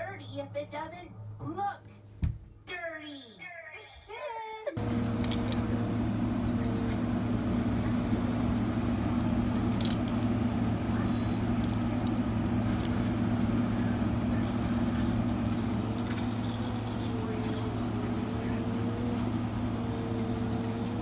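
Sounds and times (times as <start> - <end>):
steady mechanical hum: 4.7 - 21.0.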